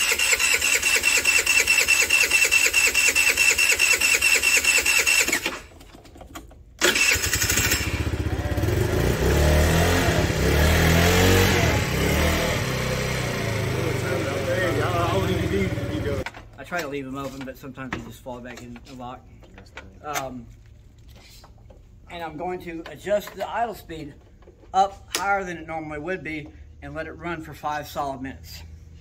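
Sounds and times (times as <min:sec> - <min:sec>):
scooter engine running: 0:00.0 - 0:05.4, 0:06.8 - 0:16.2
electric starter cranking engine: 0:00.0 - 0:05.9, 0:06.8 - 0:16.2.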